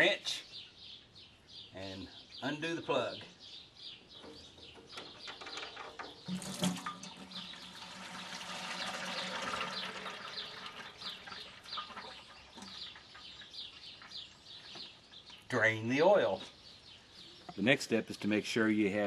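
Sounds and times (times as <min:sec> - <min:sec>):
oil pouring into bucket: 0:05.8 - 0:14.2.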